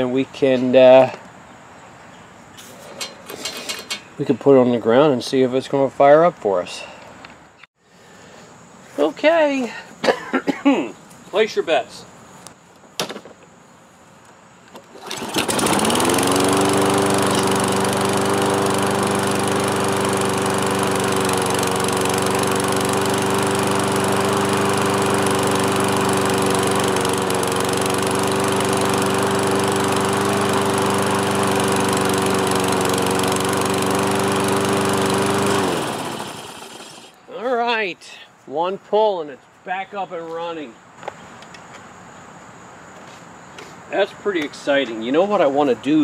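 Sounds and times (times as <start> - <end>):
lawn mower engine pull-started: 2.7 - 4.1, 14.7 - 37.2
lawn mower engine running: 2.8 - 4.1, 14.8 - 37.2.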